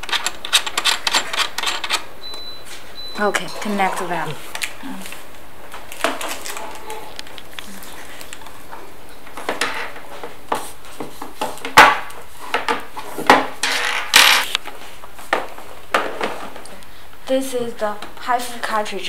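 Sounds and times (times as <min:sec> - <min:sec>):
plastic rustling: 0:03.4 - 0:13.3.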